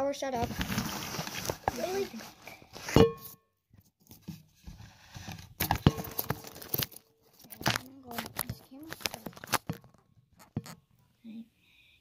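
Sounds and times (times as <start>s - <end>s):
faint rustling: 0.3s - 3.4s.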